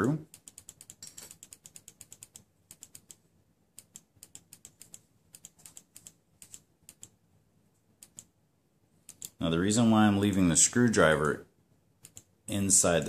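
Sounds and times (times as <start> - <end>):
small metal parts clicking: 0.5 - 3.0.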